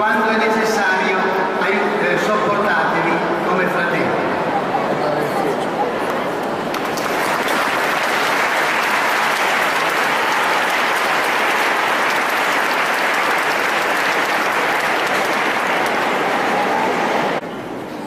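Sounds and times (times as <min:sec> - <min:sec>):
congregation applauding: 0:06.4 - 0:17.4.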